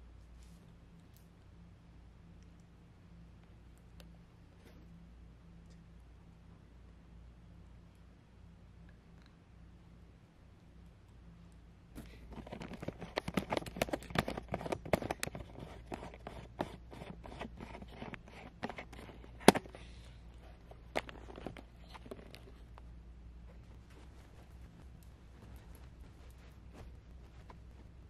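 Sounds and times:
clothes and bags rustling: 0:12.0 - 0:28.0.

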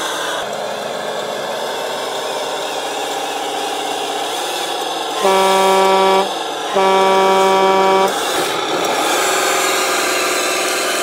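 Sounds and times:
truck air horn blasts: 0:05.2 - 0:08.4.

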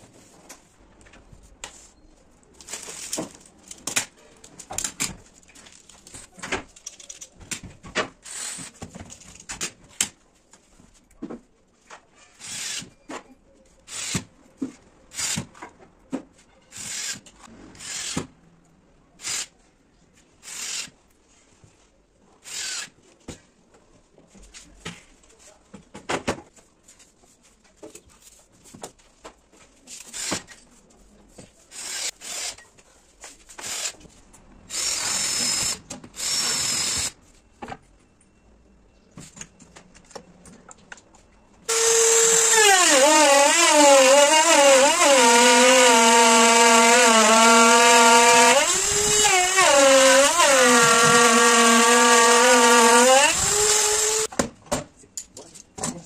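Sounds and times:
router high whine: 0:41.7 - 0:54.3.

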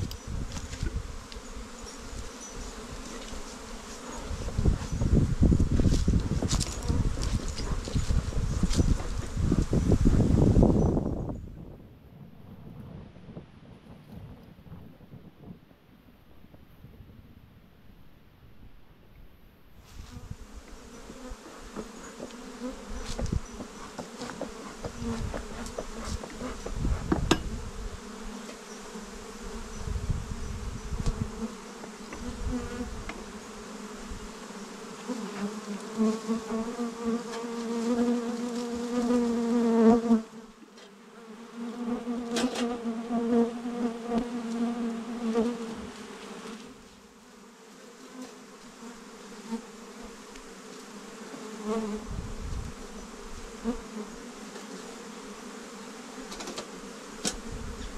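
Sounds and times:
bees buzzing: 0:00.0 - 0:11.3, 0:20.0 - 0:57.9
knocks and low thumps: 0:26.6 - 0:27.5.

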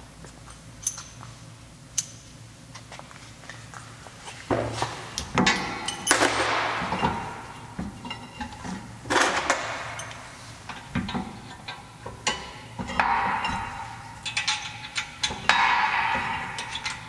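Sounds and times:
metal clanking and scraping: 0:04.2 - 0:17.0.

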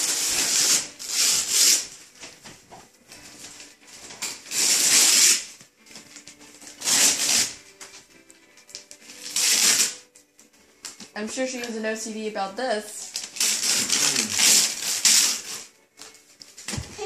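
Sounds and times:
wrapping paper ripping: 0:00.0 - 0:02.2, 0:03.2 - 0:08.0, 0:08.6 - 0:10.2, 0:13.0 - 0:17.0.

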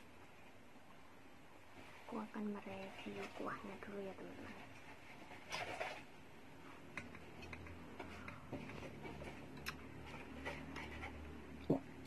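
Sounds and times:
low steady hum: 0:00.0 - 0:12.0
eating clicks and smacks: 0:06.9 - 0:08.4, 0:09.5 - 0:09.8.

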